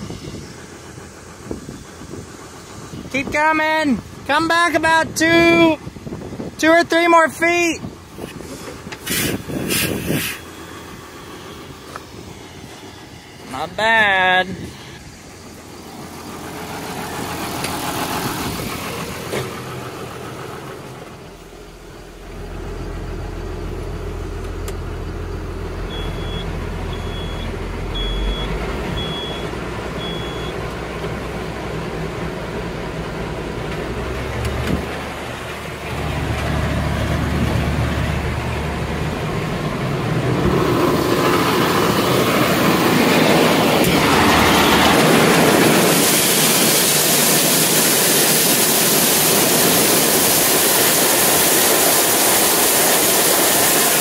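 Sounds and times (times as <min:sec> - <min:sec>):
tractor engine running: 0:00.0 - 0:54.0
short electronic beeps: 0:25.9 - 0:30.6
corn streaming into grain bin: 0:43.4 - 0:54.0.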